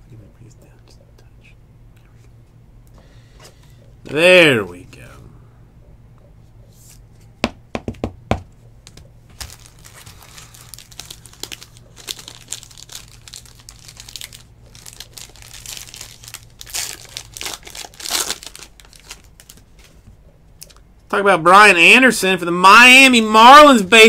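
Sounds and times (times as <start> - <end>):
foil wrapper tearing and crinkling: 9.4 - 19.7.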